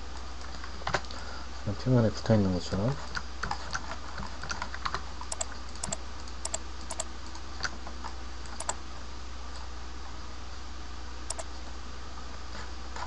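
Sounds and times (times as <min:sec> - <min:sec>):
steady low hum: 0:00.0 - 0:13.0
keyboard keys clicking: 0:04.8 - 0:07.1, 0:08.5 - 0:08.8
mouse buttons clicking: 0:05.3 - 0:07.1, 0:08.5 - 0:08.8.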